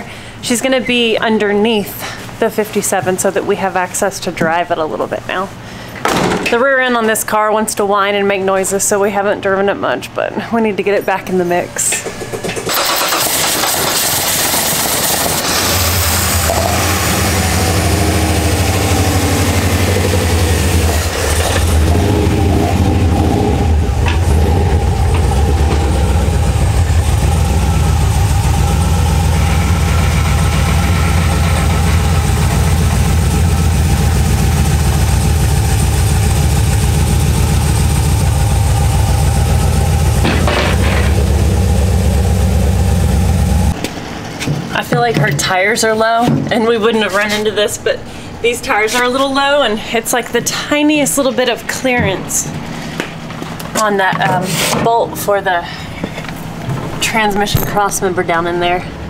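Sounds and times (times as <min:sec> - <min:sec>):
car engine idling: 0:12.1 - 0:44.3.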